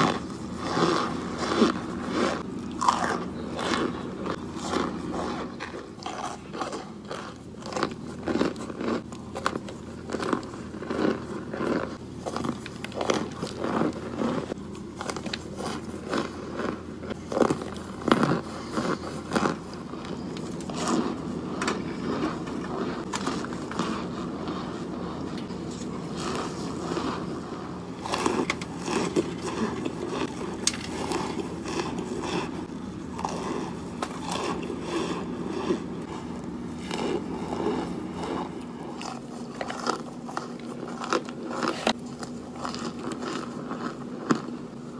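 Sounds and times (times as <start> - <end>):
crunching and chewing: 0.0 - 44.9
low steady hum: 0.0 - 44.9.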